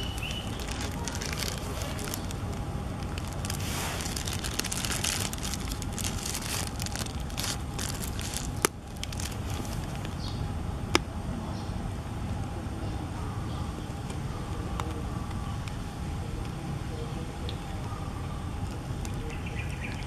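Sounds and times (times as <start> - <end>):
rustling crackles: 0.0 - 10.4
steady low rumble: 0.0 - 20.0.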